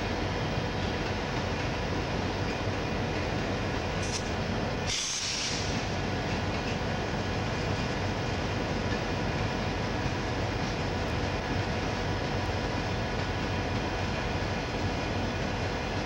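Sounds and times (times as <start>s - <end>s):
freight train wheels rumbling on track: 0.0s - 16.0s
short high-pitched hiss: 4.0s - 6.0s.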